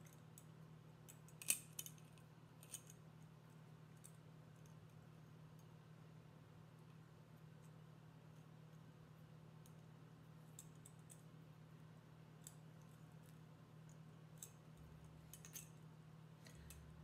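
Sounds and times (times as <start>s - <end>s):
steady low hum: 0.0s - 17.0s.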